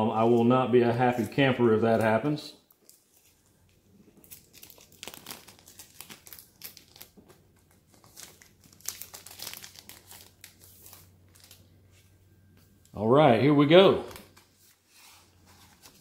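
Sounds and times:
plastic bag crinkling: 2.7s - 11.7s.

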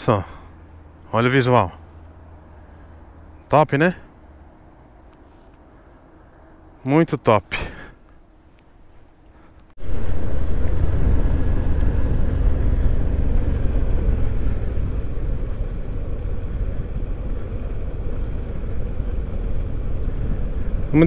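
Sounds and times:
motorcycle engine running: 9.8s - 21.0s.

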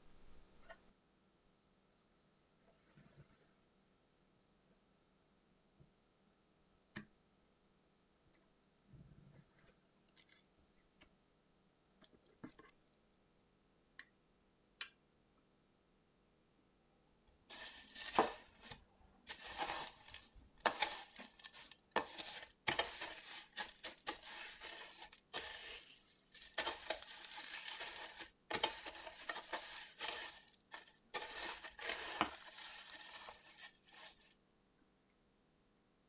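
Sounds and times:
breadcrumbs crunching and rustling: 17.5s - 34.4s.

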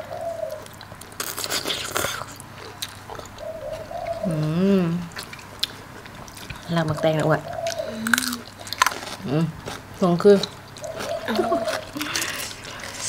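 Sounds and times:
slurping and chewing noodles: 0.7s - 3.9s
person humming mmm: 4.2s - 5.1s, 7.8s - 8.4s, 11.3s - 13.0s.

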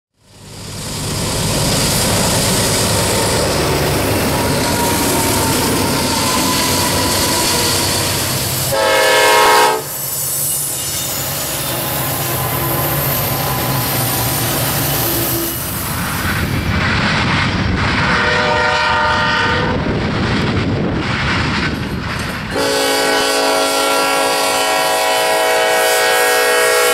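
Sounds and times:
freight train rumbling past: 0.2s - 26.9s
locomotive horn blast: 8.7s - 10.0s, 18.1s - 19.8s, 22.5s - 26.9s.

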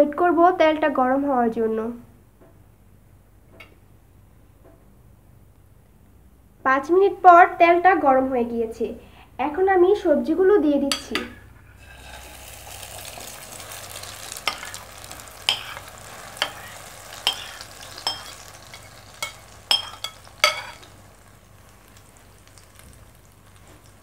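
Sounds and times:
potato mixture sizzling in oil: 10.9s - 24.0s
utensil clinking on plate and pan: 13.0s - 21.0s.

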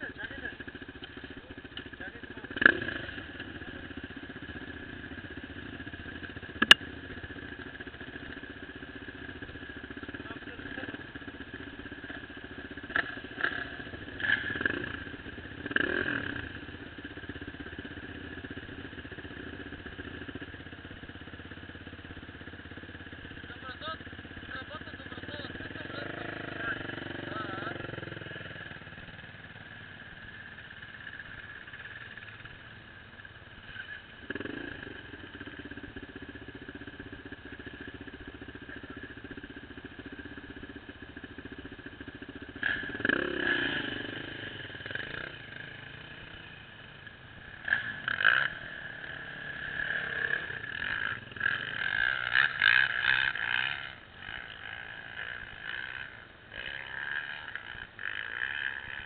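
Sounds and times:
motorcycle engine droning: 0.0s - 59.0s.

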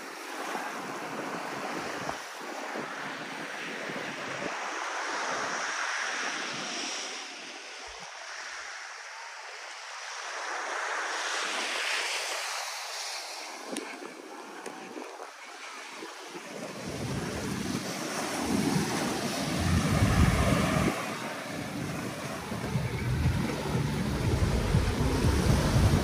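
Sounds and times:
small waves washing onto beach: 0.0s - 26.0s
wind buffeting microphone: 13.4s - 26.0s.

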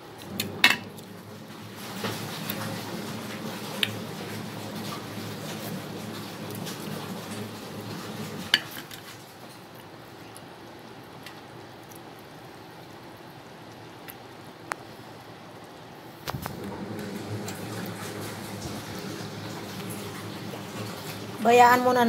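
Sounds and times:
soup boiling: 0.0s - 11.8s, 16.3s - 21.8s.

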